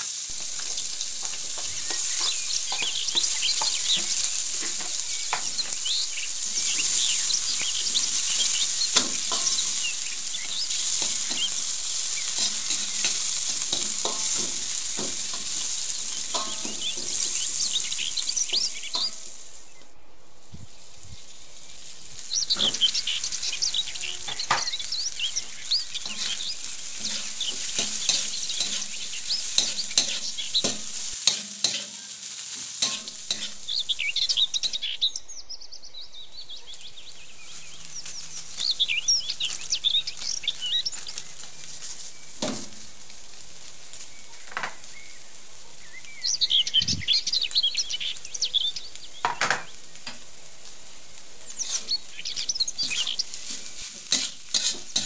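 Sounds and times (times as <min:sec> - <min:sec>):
spatula scraping wok: 0:00.0 - 0:19.8, 0:20.4 - 0:35.0, 0:37.1 - 0:45.4, 0:48.9 - 0:55.0
oil sizzling: 0:00.0 - 0:55.0
spatula knocking against wok: 0:00.4 - 0:19.3, 0:24.3 - 0:32.0, 0:32.8 - 0:33.7.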